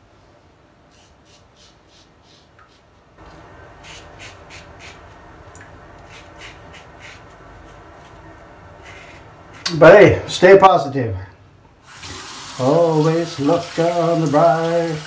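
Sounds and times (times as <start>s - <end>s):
razor scraping stubble: 0.9s - 2.9s, 3.8s - 5.2s, 6.0s - 8.2s.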